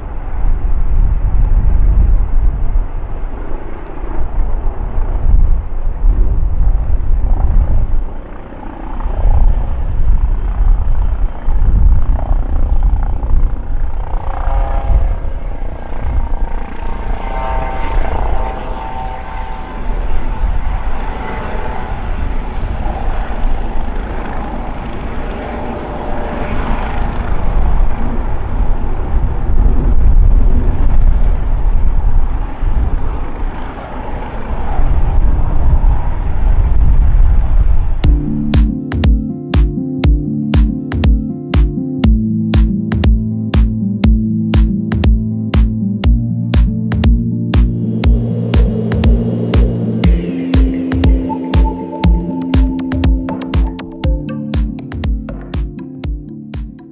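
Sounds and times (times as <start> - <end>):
helicopter rotor and turbine noise: 0.0 - 38.0
turbine whine: 0.0 - 38.2, 47.2 - 52.8.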